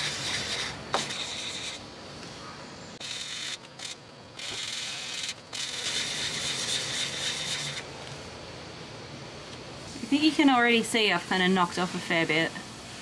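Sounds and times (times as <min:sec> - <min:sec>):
sandpaper rubbing scratchy hiss: 0:00.0 - 0:01.8, 0:03.0 - 0:07.9.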